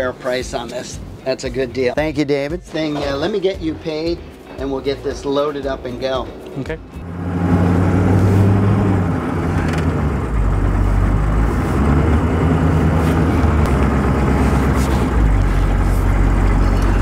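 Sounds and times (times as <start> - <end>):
truck engine running: 7.0 - 17.0.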